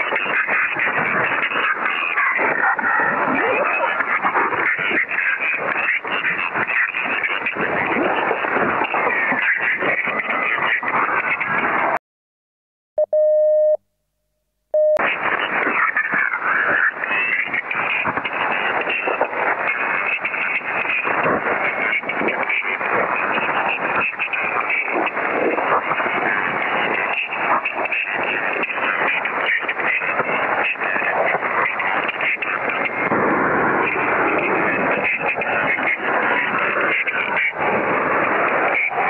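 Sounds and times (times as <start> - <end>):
harsh radio static: 0.0 - 12.0, 14.8 - 39.0
steady electronic beep: 13.0 - 13.9, 14.7 - 15.0.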